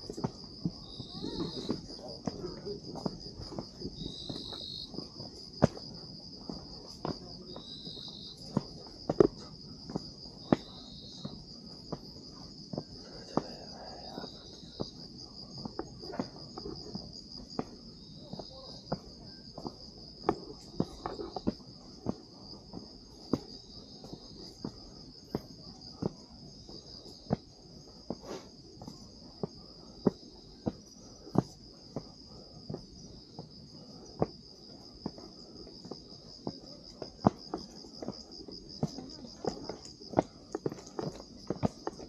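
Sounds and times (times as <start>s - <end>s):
footsteps on a trail: 0.0s - 42.0s
insects trilling: 0.0s - 42.0s
low insect chirp: 0.0s - 42.0s.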